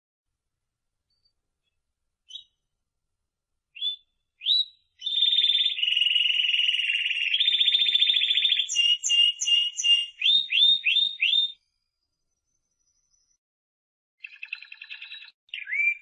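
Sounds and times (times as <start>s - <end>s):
canary singing: 2.3s - 2.6s, 3.8s - 11.6s, 14.2s - 16.0s.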